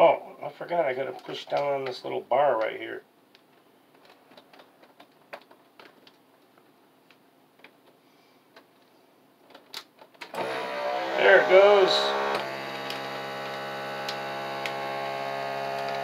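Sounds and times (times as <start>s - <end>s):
vacuum pump motor humming: 10.3s - 16.0s.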